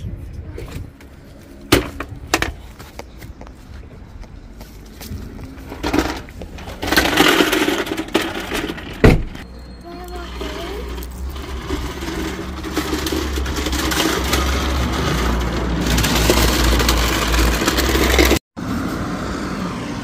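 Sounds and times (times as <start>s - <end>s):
loud thump: 9.0s - 9.4s.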